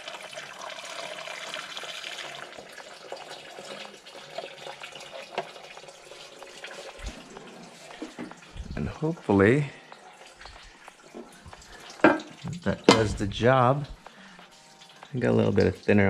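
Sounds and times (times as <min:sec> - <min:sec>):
liquid trickling splash: 0:00.0 - 0:15.9.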